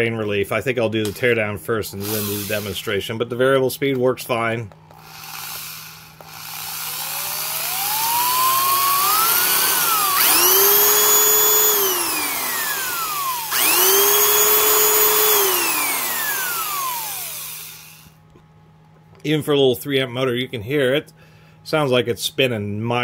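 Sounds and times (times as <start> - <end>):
electric drill motor whining: 2.0 - 2.8, 4.9 - 18.2.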